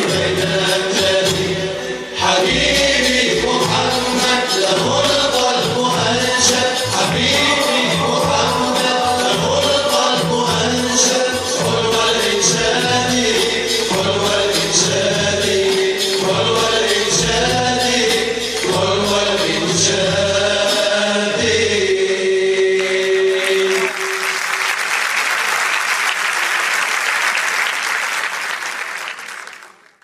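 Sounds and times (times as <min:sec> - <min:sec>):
steady drum beat: 0:00.0 - 0:01.7, 0:02.3 - 0:20.8
vocal ensemble singing: 0:00.0 - 0:24.4
audience applause: 0:22.8 - 0:30.0.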